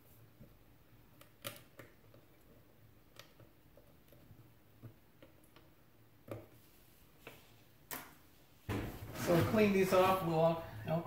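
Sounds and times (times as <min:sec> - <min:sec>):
faint clicks and taps: 0:00.3 - 0:06.6.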